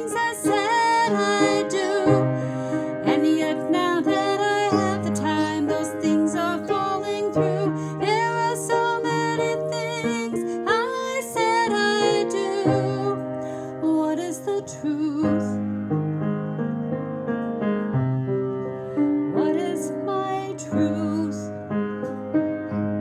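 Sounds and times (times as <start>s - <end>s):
woman singing with vibrato: 0.0s - 13.2s, 19.4s - 21.5s.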